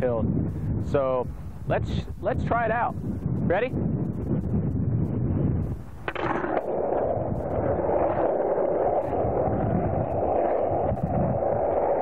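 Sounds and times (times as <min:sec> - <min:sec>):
skateboard rolling on asphalt: 0:05.1 - 0:12.0.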